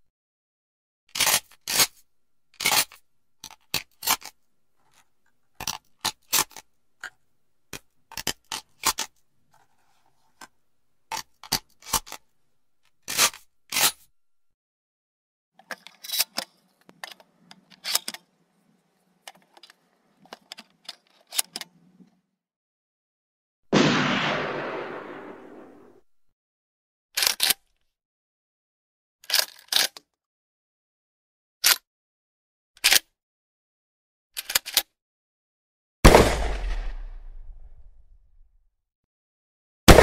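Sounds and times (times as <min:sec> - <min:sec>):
shotgun metallic clicks and clacks: 0:36.1 - 0:37.9.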